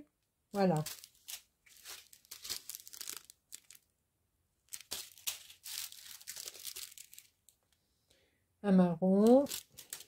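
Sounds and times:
plastic bags crinkling and tearing: 0.6 - 3.9, 4.6 - 7.6, 9.2 - 10.0.

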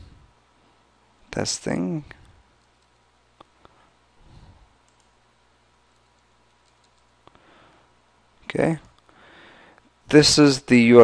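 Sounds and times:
soft keyboard keystrokes: 2.2 - 3.6, 4.8 - 5.2, 5.9 - 7.2
mouse clicks: 4.8 - 5.2, 5.9 - 7.4.

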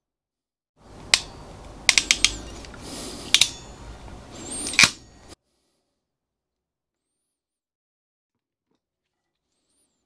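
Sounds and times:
wire crimper ratchet clicking: 1.9 - 2.6.

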